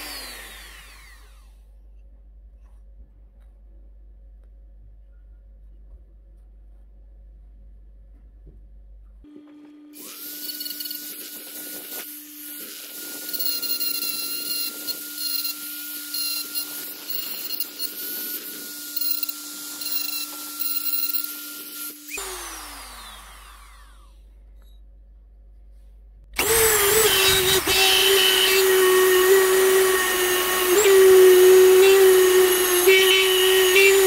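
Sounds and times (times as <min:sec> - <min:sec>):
rotary tool grinding metal: 0:10.0 - 0:22.7, 0:26.4 - 0:34.0.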